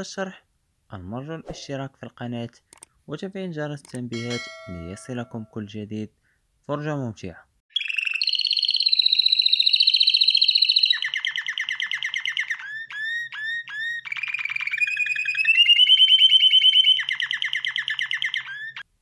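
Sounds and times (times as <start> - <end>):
canary singing trills: 7.7 - 18.9.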